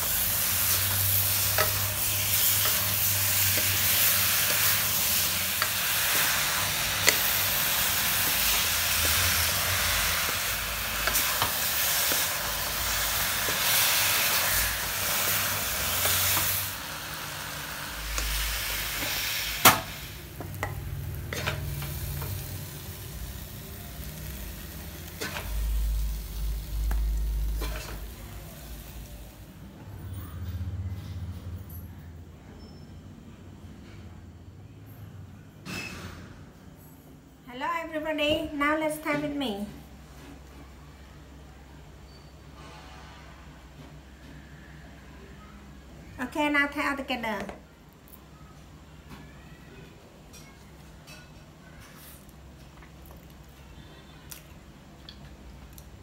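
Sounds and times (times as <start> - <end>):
food sizzling in a wok: 0.0 - 29.6.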